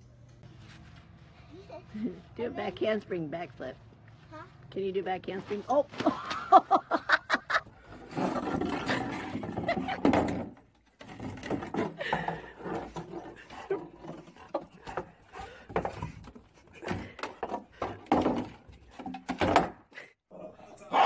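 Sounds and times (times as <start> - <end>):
plastic shovel scraping: 7.8 - 10.1
plastic knocking on wooden boards: 15.7 - 19.8.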